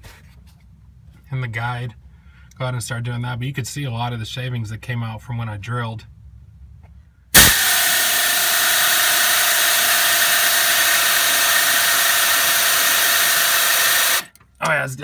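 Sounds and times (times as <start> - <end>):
air hiss: 7.4 - 14.2
air ratchet whining: 7.4 - 14.4.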